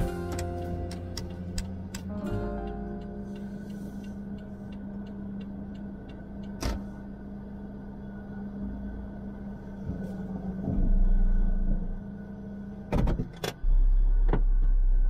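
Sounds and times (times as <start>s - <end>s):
low engine hum: 0.0s - 15.0s
road rumble: 0.0s - 15.0s.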